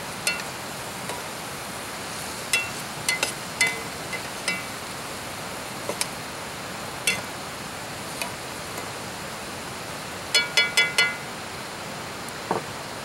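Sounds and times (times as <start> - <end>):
steady hiss: 0.0 - 13.0
knife clinking on skillet: 0.2 - 0.5, 2.5 - 4.8, 7.0 - 7.3, 10.3 - 11.3.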